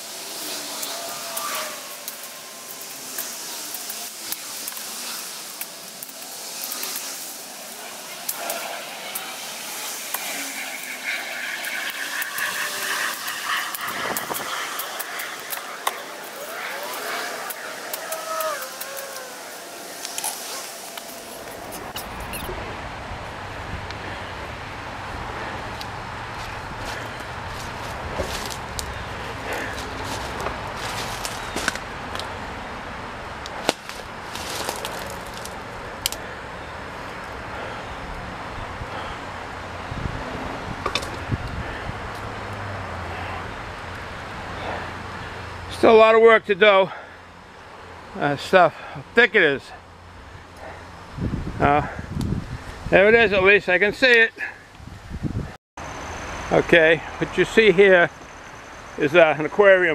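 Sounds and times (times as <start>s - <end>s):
rustling of brush: 0.0s - 22.5s, 25.6s - 32.4s, 33.5s - 35.7s
dry brush stems snapping: 14.4s - 19.4s, 33.5s - 36.2s
twigs snapping: 33.5s - 36.2s.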